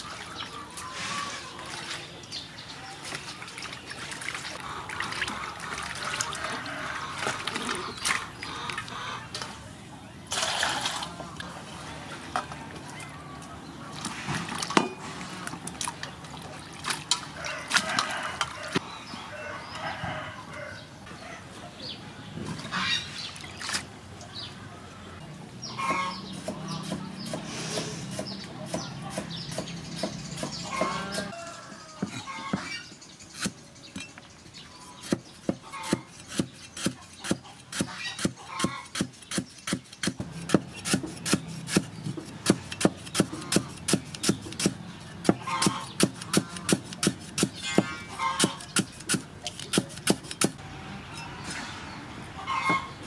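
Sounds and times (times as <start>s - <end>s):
chickens clucking: 4.6s - 9.7s, 25.6s - 33.5s, 34.7s - 39.4s, 43.1s - 44.4s, 45.2s - 50.5s, 51.1s - 53.0s
cleaver chopping on wooden board: 25.9s - 31.3s, 35.0s - 50.6s.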